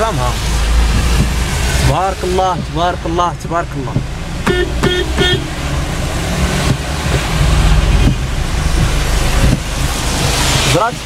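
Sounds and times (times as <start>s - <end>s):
rain hiss: 0.0s - 4.8s, 5.4s - 11.0s
engine and tyres on wet road: 0.0s - 11.0s
car horn beeps: 4.4s - 5.6s.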